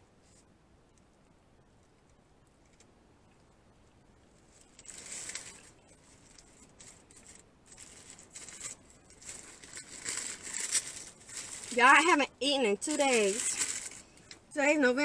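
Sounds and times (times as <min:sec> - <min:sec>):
wrapper crinkling and rustling: 0:04.4 - 0:14.4.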